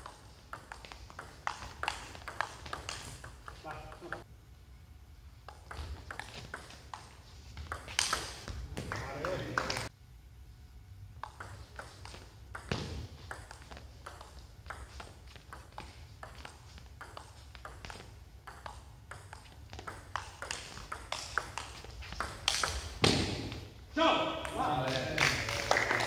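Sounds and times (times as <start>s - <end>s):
table tennis ball clicking: 0.0s - 4.2s, 5.4s - 8.5s, 11.2s - 22.9s.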